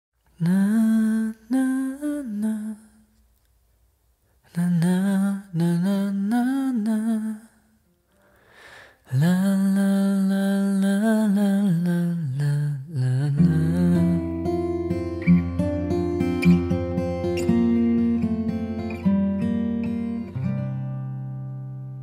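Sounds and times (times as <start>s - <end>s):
man humming a slow melody: 9.1s - 14.7s.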